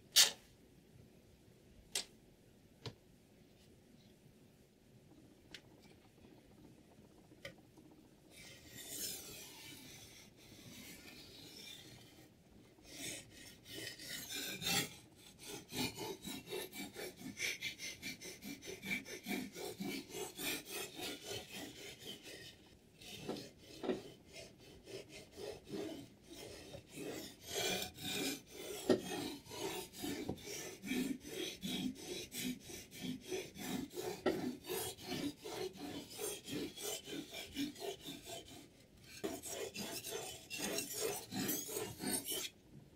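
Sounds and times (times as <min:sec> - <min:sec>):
whetstone scraping knife blade: 0:12.9 - 0:17.6, 0:24.9 - 0:42.5.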